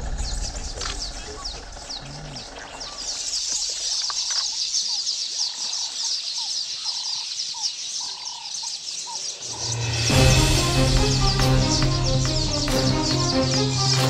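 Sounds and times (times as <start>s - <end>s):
birds chirping: 0.0s - 14.0s
clear low bird notes: 9.2s - 14.0s.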